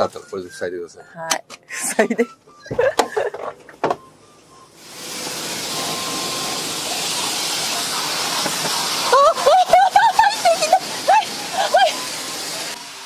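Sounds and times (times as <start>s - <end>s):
pressure washer spraying window: 4.8s - 13.0s.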